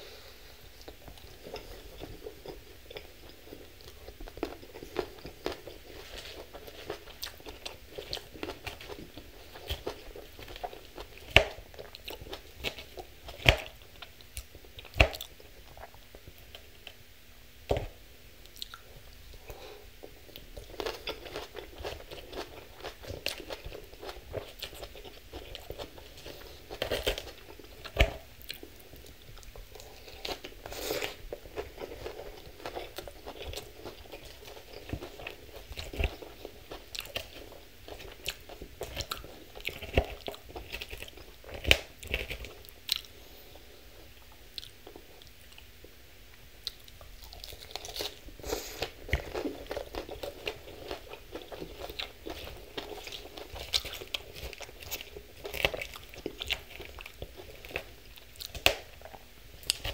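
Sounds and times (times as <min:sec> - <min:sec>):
crunching and chewing salad: 0:00.0 - 0:59.9.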